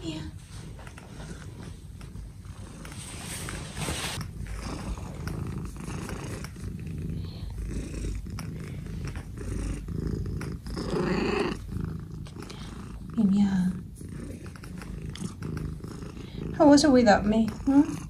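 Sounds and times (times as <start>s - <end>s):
cat purring: 0.0s - 18.0s.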